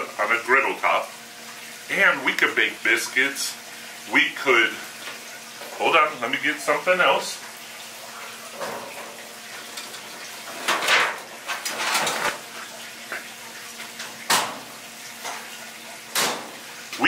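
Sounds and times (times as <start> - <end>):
metal clatter and rattles: 9.7 - 12.4.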